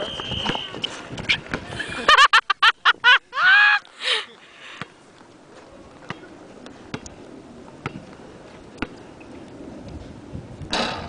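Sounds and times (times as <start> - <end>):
basketball bouncing on asphalt: 0.1 - 1.7, 6.9 - 7.2, 7.8 - 9.0
person whooping shout: 3.4 - 3.9.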